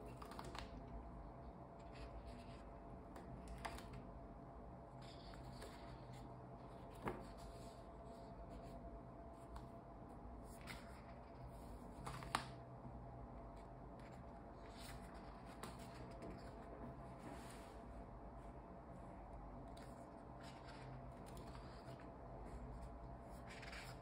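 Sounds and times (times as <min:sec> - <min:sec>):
paper rustling: 0:04.9 - 0:08.8, 0:13.5 - 0:17.8, 0:19.6 - 0:24.0.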